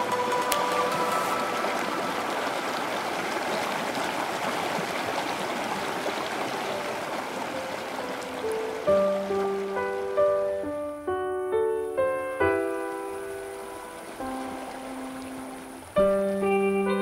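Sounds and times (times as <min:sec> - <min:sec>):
stream rushing over rocks: 0:00.0 - 0:11.1, 0:12.0 - 0:16.7.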